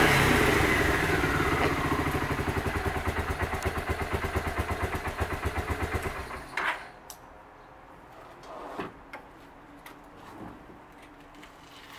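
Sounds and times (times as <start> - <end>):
motorcycle engine idling: 0.0 - 6.5.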